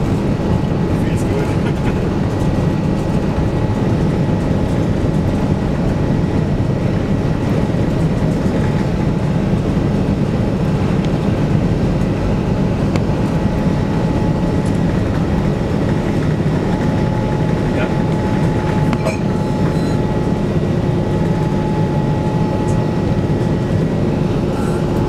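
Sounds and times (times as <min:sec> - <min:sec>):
jet engines and rushing air rumble: 0:00.0 - 0:25.0
faint steady whine: 0:08.8 - 0:25.0.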